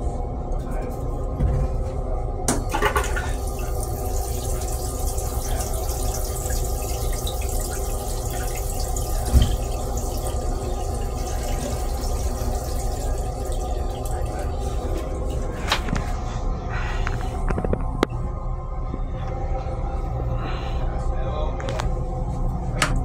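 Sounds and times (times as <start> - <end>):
toilet flushing water rushing: 2.6 - 16.5
low steady rumble: 3.2 - 23.0.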